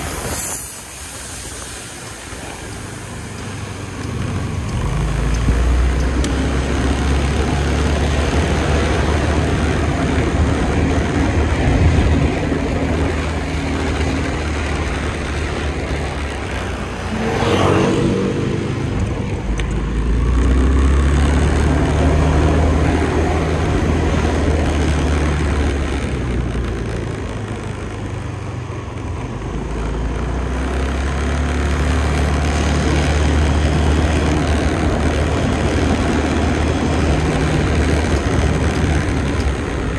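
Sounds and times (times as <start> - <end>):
road noise: 0.0 - 39.9
scooter engine: 0.0 - 39.9
vehicle passing by: 4.2 - 26.6.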